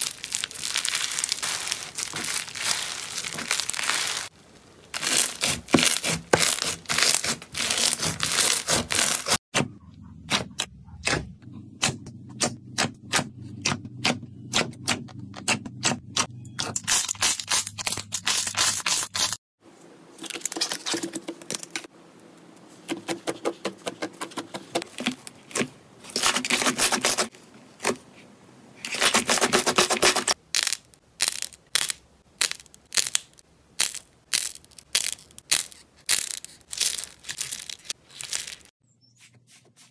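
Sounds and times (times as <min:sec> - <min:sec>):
slime crackling and popping: 0:00.0 - 0:09.4.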